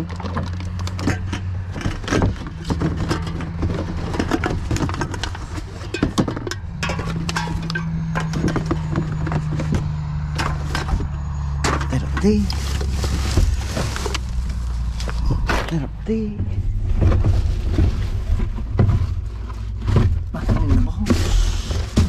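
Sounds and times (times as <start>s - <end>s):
rubbish rustling in a bin: 0.0s - 15.8s, 16.6s - 22.0s
low mechanical hum: 0.0s - 22.0s.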